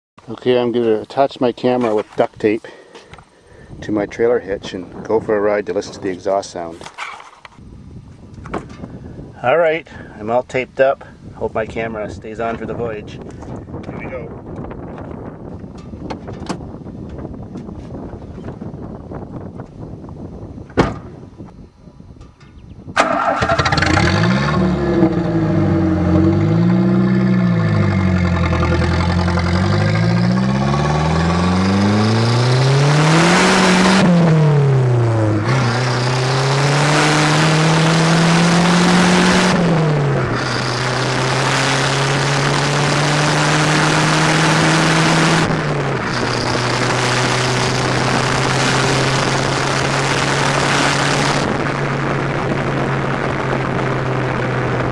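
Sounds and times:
thump: 0:20.7 - 0:21.2
car engine revving: 0:23.0 - 0:54.9
car exhaust accelerating: 0:23.0 - 0:54.9.

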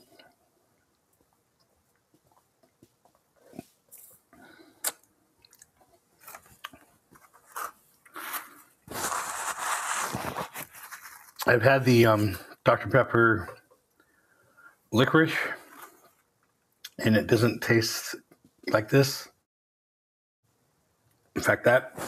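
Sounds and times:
paper napkin rustling: 0:07.2 - 0:11.4
sipping through a straw: 0:07.5 - 0:11.4.

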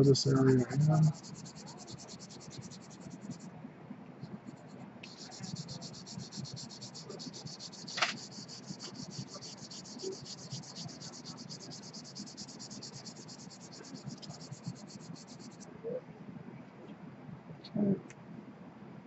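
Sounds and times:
pencil scratching on paper: 0:00.0 - 0:03.5, 0:04.3 - 0:15.6.

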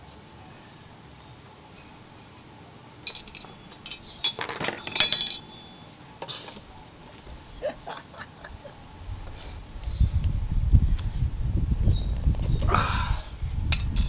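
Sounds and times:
metal tools clinking: 0:03.0 - 0:06.6, 0:13.7 - 0:14.0.

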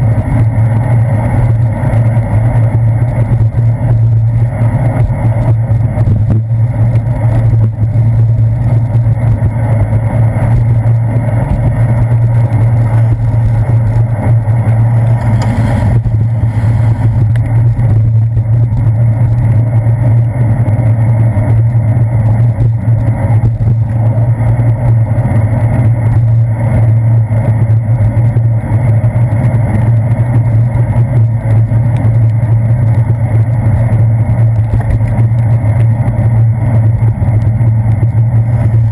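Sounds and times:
muffled wind rumble: 0:00.0 - 0:38.9
car traffic: 0:06.6 - 0:20.1.

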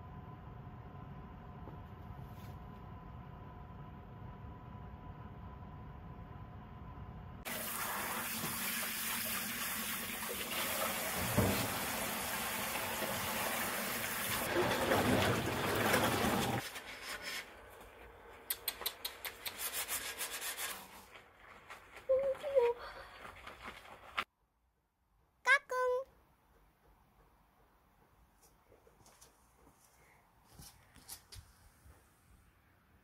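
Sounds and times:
tap water running into steel sink: 0:07.5 - 0:16.6
rubber-gloved hands scrubbing: 0:19.0 - 0:24.3.

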